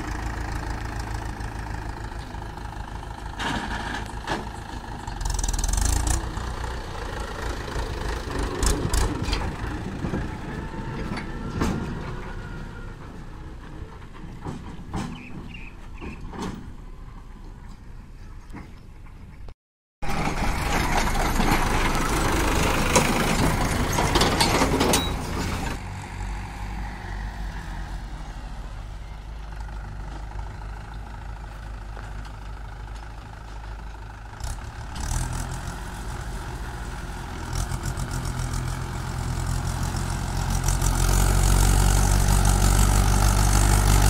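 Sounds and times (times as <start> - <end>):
diesel tractor engine running: 0.0 - 44.0.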